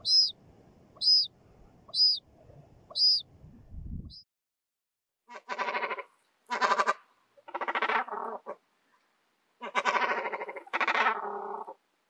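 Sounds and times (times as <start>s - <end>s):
gull calling harshly: 9.6s - 11.7s.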